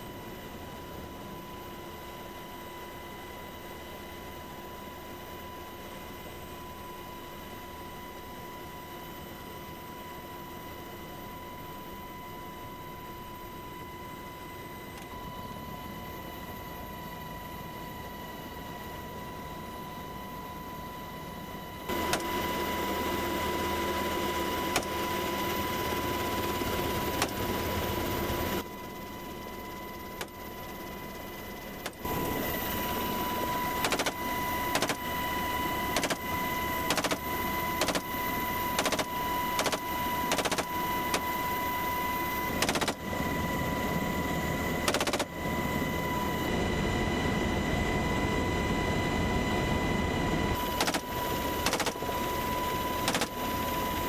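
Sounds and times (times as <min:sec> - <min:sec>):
helicopter cabin noise: 0:00.0 - 0:54.0
rifle shots: 0:36.9 - 0:37.2, 0:37.8 - 0:38.0, 0:38.8 - 0:40.7, 0:42.6 - 0:43.0, 0:44.9 - 0:45.3, 0:50.7 - 0:52.0.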